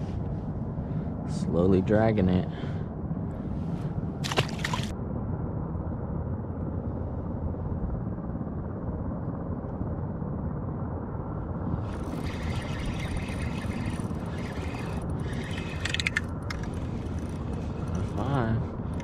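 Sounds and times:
wind rumble on microphone: 0.0s - 19.0s
fishing reel whirring: 11.7s - 19.0s
sharp reel clicks: 11.8s - 19.0s.

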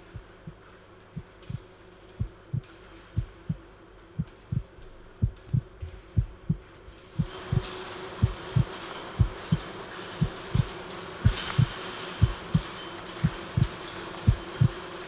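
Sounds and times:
faint steady hum: 0.0s - 15.0s
amplified heartbeat thumps: 1.2s - 3.6s, 4.2s - 9.6s, 10.2s - 12.6s, 14.3s - 14.7s.

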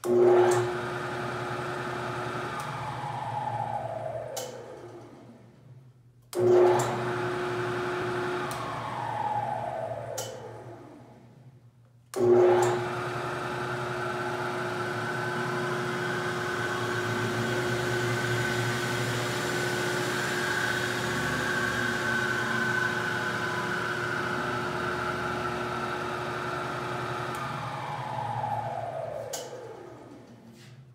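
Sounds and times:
drill press motor whine: 0.0s - 5.4s, 6.4s - 11.3s, 12.2s - 30.4s.

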